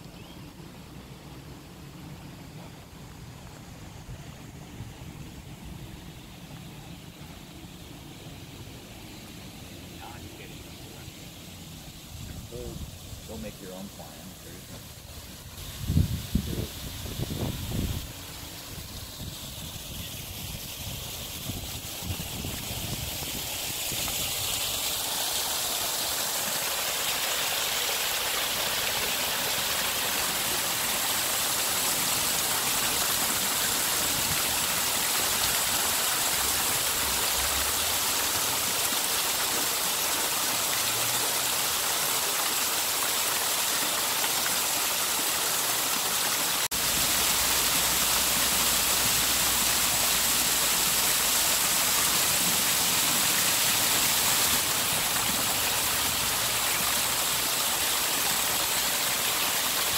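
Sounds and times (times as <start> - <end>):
water splashing over rocks: 16.8 - 59.9.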